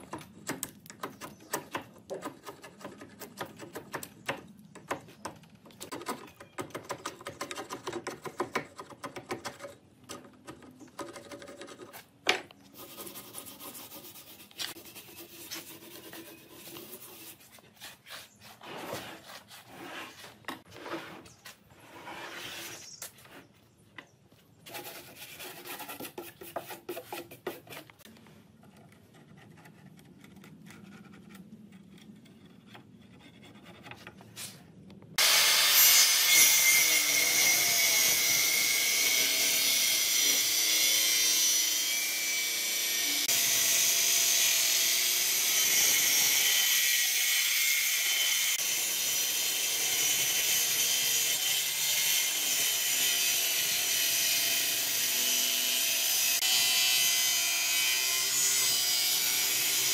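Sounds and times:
chisel scraping wood: 8.0 - 23.6, 24.6 - 34.6.

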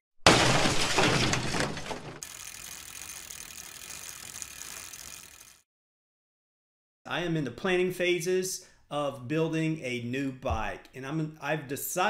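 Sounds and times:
loud gritty crash: 0.2 - 2.2.

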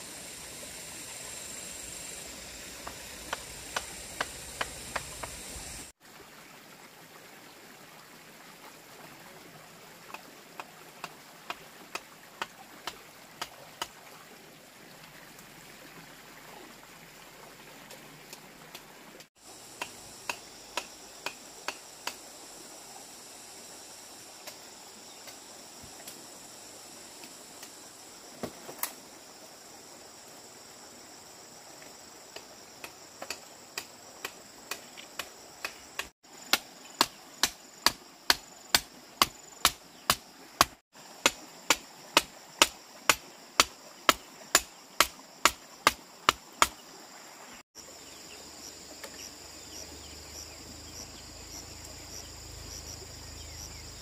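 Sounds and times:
insects chirring: 0.0 - 5.9, 19.4 - 54.0.

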